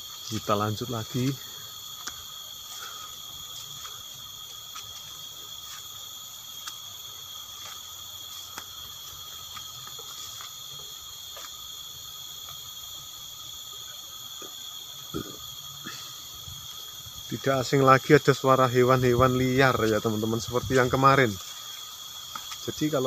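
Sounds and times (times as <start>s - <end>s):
insects droning: 0.0s - 23.0s.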